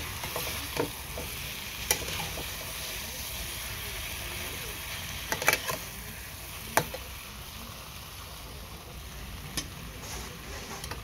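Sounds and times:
metal spatula stirring: 0.0s - 3.0s, 5.2s - 6.0s
food sizzling in frying pan: 0.0s - 11.0s.

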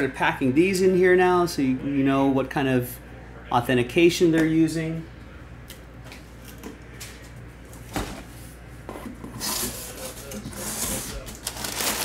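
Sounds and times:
box packaging scraping and rubbing: 9.0s - 12.0s
packaging rustling: 10.0s - 12.0s.

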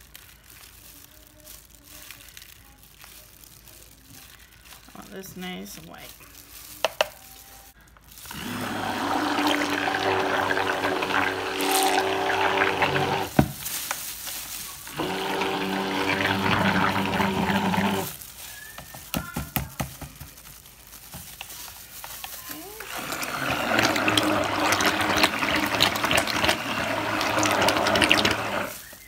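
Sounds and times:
stick blender motor whir: 8.2s - 13.3s, 14.9s - 18.2s, 22.8s - 29.0s.

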